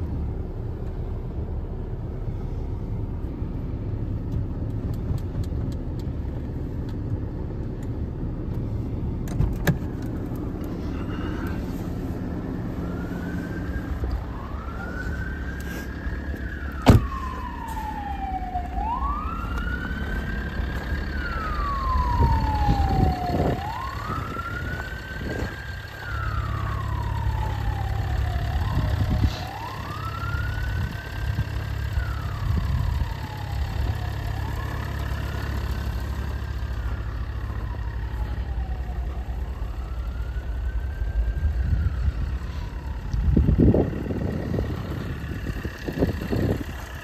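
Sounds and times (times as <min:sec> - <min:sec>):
diesel engine idling: 0:00.0 - 0:47.0
siren wailing: 0:10.8 - 0:47.0.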